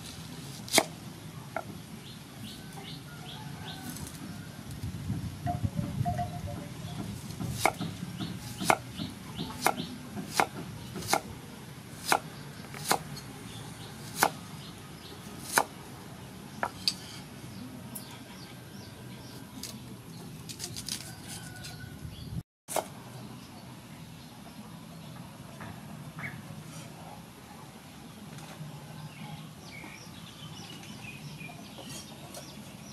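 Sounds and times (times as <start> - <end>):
cleaver chopping on wooden board: 7.0 - 11.3, 12.0 - 13.1, 14.1 - 14.4, 15.4 - 15.7.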